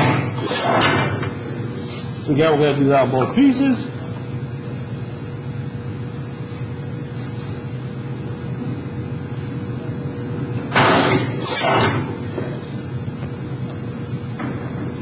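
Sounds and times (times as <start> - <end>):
metal shear crashing through sheet metal: 0.0 - 1.2, 10.7 - 12.1
steady background hum: 0.0 - 15.0.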